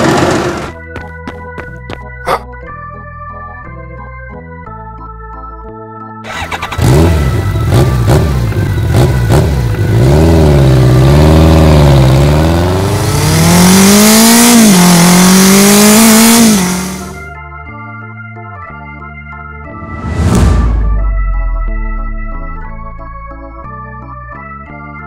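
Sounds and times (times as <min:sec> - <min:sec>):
motorcycle engine revving: 0:00.0 - 0:00.8, 0:06.3 - 0:17.2
organ music: 0:00.6 - 0:13.0, 0:16.3 - 0:25.0.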